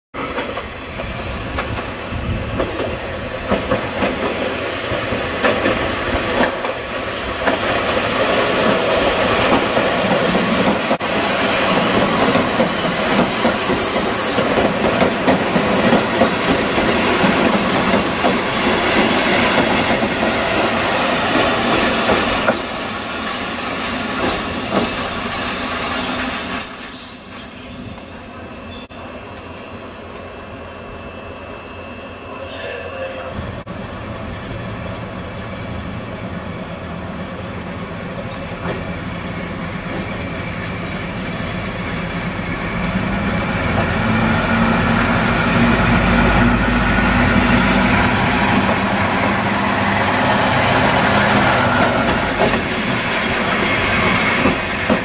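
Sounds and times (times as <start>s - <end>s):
train wheels on rails: 0.2s - 32.0s, 33.4s - 55.0s
diesel train passing: 0.2s - 55.0s
high brake squeal: 0.6s - 1.2s, 12.6s - 14.6s, 21.8s - 30.0s, 51.3s - 52.8s.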